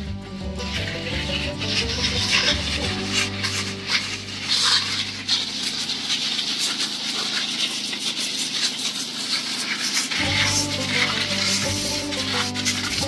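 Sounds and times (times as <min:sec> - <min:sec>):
background music: 0:00.0 - 0:05.3, 0:10.2 - 0:13.0
faint crackles: 0:00.0 - 0:13.0
spray hissing from nozzle: 0:00.6 - 0:13.0.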